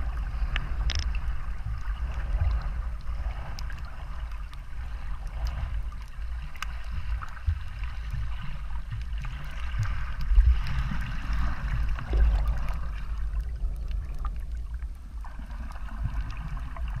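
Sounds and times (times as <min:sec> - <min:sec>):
underwater rumble of moving water: 0:00.0 - 0:17.0
faint clicks: 0:00.4 - 0:01.4, 0:05.2 - 0:08.2.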